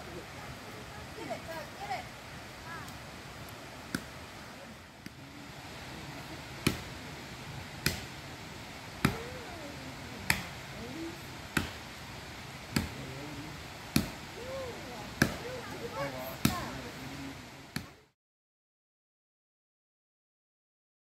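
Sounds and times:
axe chopping tree trunk: 6.6s - 6.9s, 7.8s - 8.2s, 9.0s - 9.3s, 10.3s - 10.6s, 11.5s - 11.8s, 12.7s - 13.0s, 13.9s - 14.2s, 15.2s - 15.4s.

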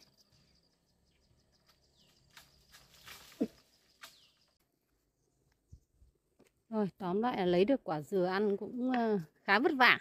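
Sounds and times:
faint high insect tone: 0.0s - 4.6s
faint chirps and clicks: 0.0s - 6.6s.

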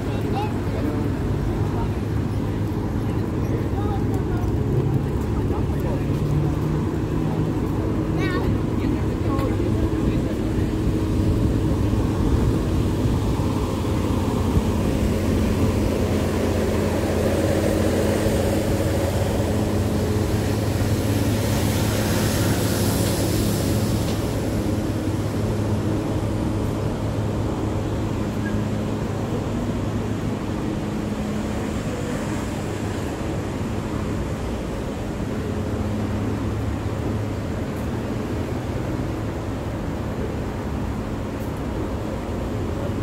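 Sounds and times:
train car drive hum: 0.0s - 43.0s.

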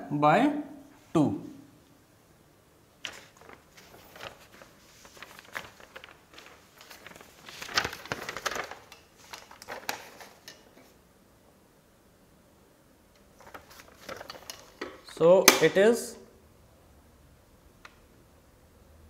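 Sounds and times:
paper rustling: 3.0s - 11.0s, 13.2s - 15.1s.

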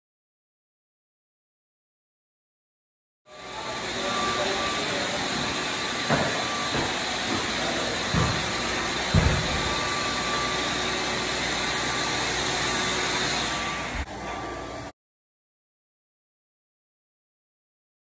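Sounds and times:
vacuum machine running: 3.3s - 14.9s
dull thumps: 9.1s - 9.8s.

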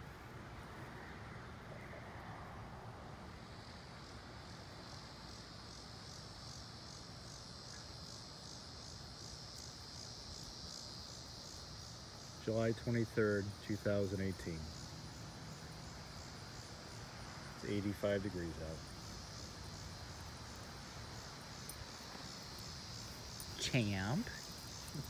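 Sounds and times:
insect chirping: 0.0s - 25.0s
low outdoor hiss: 0.0s - 25.0s.

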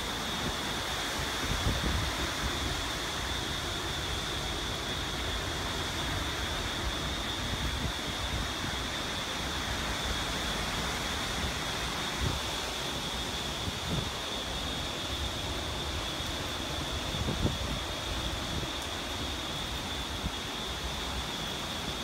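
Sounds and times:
rain hissing: 0.0s - 22.0s
strong wind through trees: 0.0s - 22.0s
wind buffeting microphone: 15.7s - 20.3s.

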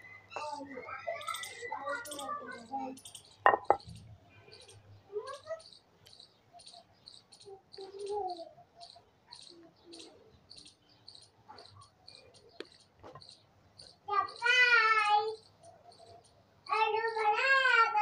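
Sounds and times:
faint knocks: 3.4s - 3.9s.

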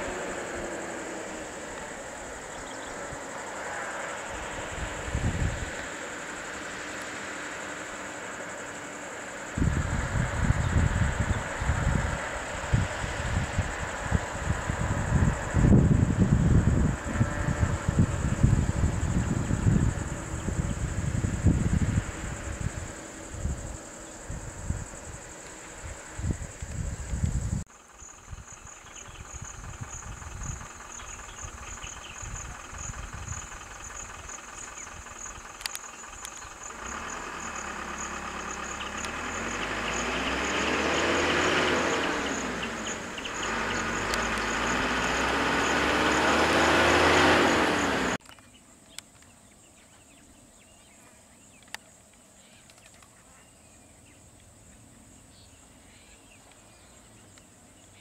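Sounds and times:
vehicle engine revving: 0.0s - 48.2s
high pulsing insect drone: 0.0s - 58.0s.

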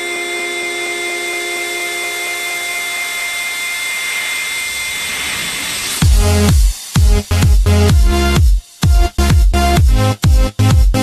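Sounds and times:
white-noise sweep: 3.0s - 8.8s
heavy kick drums: 6.0s - 11.0s.

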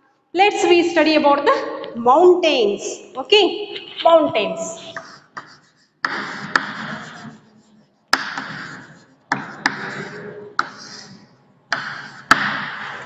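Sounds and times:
chalk scratching on chalkboard: 3.8s - 13.0s
chalk tapping on chalkboard: 3.8s - 13.0s.

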